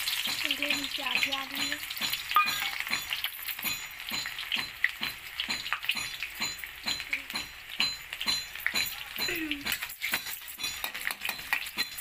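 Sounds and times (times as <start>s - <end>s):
hot oil sizzling and popping: 0.0s - 12.0s.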